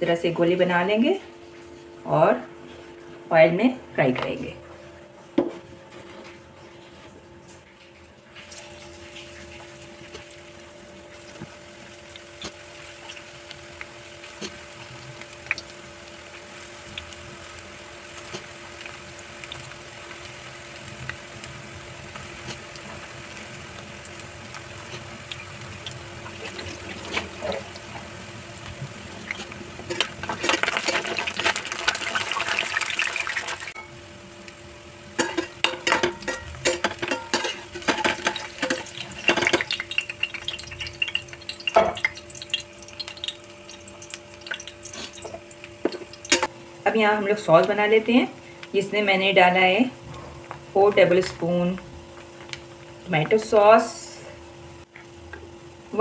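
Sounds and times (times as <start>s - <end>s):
food deep-frying in oil: 6.2s - 56.0s
metal spoon scraping a pan: 35.2s - 39.6s.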